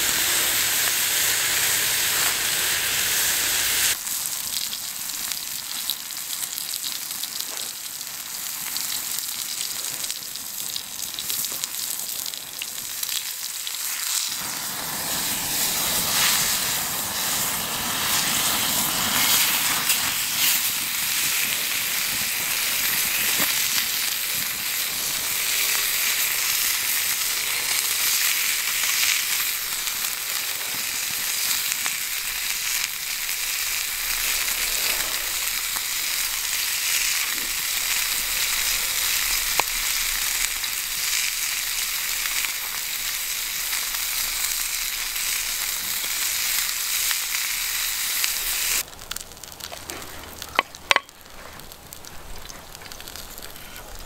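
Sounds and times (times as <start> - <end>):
bacon sizzling in a pan: 0.0 - 54.0
fat popping: 49.6 - 51.2.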